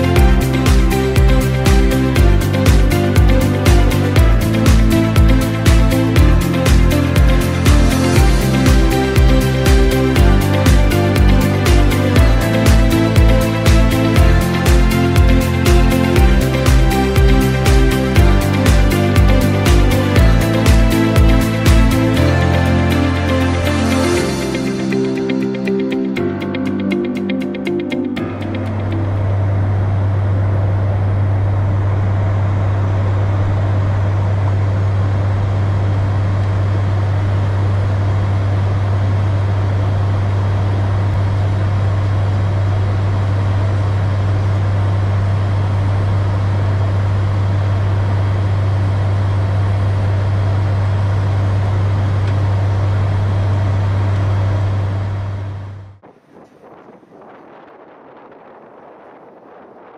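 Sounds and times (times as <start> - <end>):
propeller engine drone: 0.0 - 59.9
constant rushing noise: 28.6 - 59.9.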